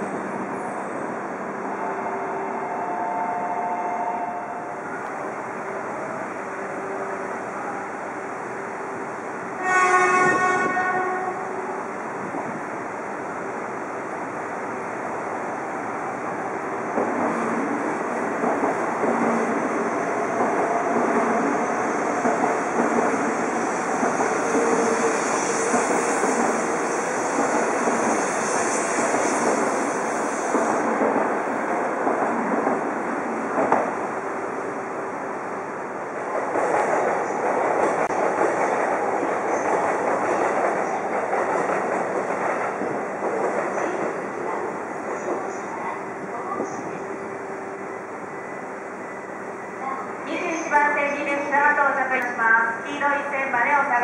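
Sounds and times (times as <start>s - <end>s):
train rumble and whine: 0.0s - 54.0s
train horn blast: 2.8s - 4.7s, 9.6s - 11.5s.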